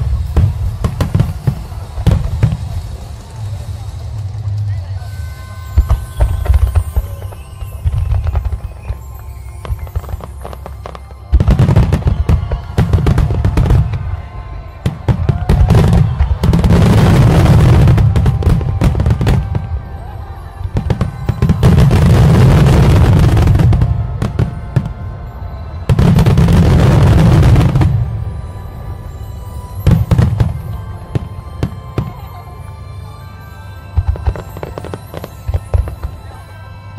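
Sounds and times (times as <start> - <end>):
fireworks deep bangs: 0.0 - 4.8, 5.6 - 28.9
fireworks crackling: 0.0 - 36.9.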